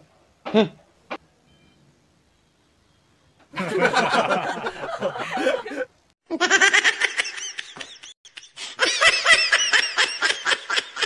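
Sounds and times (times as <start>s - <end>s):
laughter: 3.6s - 11.0s.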